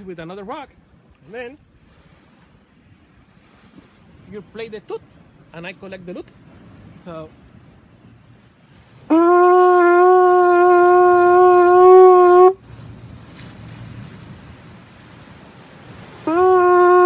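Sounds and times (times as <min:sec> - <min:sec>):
conch shell trumpet blast: 0:09.1 - 0:12.6, 0:16.2 - 0:17.0.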